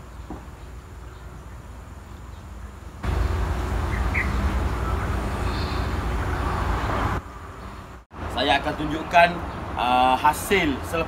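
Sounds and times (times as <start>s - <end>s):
bird chirping: 0.0s - 8.0s.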